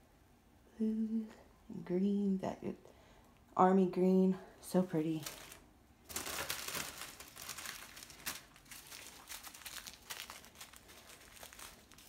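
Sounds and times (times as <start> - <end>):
plastic zip bags crinkling: 5.1 - 12.0.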